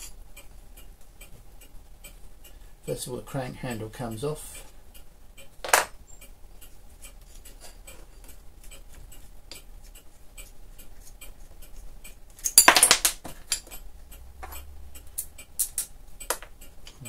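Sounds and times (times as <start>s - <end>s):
metal parts clattering: 12.4s - 13.8s.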